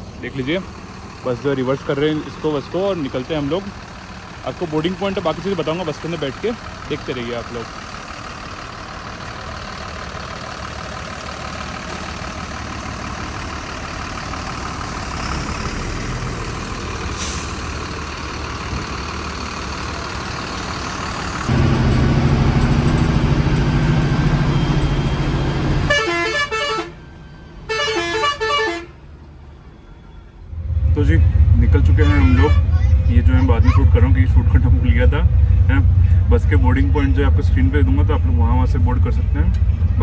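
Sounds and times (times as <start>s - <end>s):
bus diesel engine running: 0.0s - 40.0s
bus horn: 25.7s - 29.1s, 31.9s - 32.8s.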